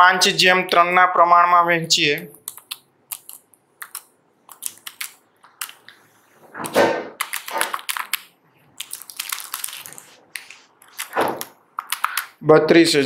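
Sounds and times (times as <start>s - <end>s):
paper pages rustling: 2.5s - 12.4s.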